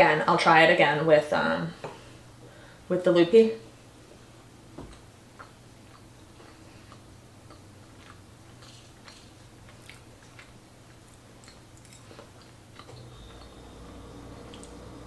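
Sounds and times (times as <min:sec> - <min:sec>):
low steady hum: 0:00.0 - 0:15.0
person chewing: 0:04.9 - 0:13.6.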